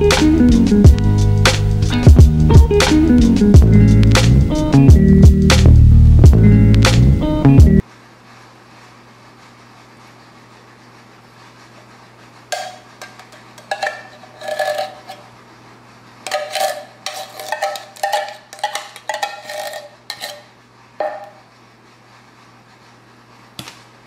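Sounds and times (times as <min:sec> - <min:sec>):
metal spoon scraping tin can: 0:12.6 - 0:15.3, 0:16.2 - 0:20.5.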